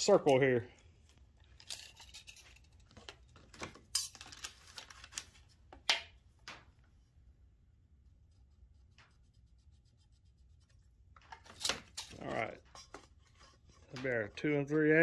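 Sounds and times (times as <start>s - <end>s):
marker scratching on poster board: 8.2s - 11.2s.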